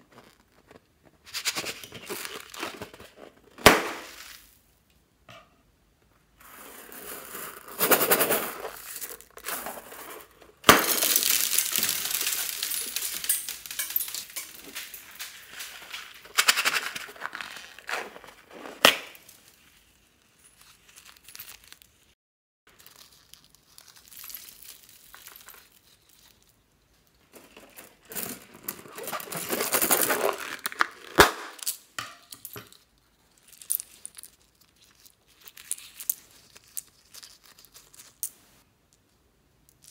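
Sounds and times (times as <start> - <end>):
rubber balloons crinkling: 0.0 - 4.6, 7.1 - 22.1, 27.3 - 31.6
plastic pieces clattering: 0.1 - 4.6, 6.4 - 19.6, 22.7 - 38.4.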